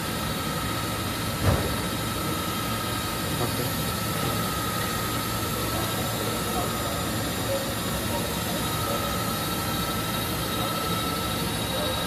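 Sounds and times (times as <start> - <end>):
machine hum with high whine: 0.0 - 12.0
thump: 1.4 - 1.8.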